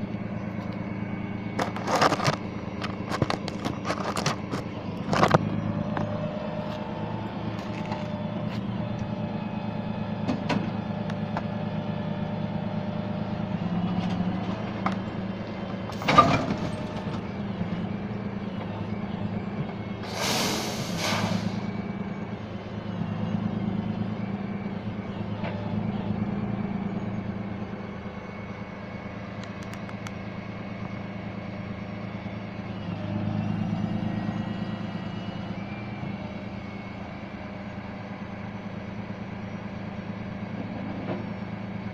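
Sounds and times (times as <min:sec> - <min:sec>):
truck engine running: 0:00.0 - 0:41.9
air hiss: 0:20.1 - 0:21.7.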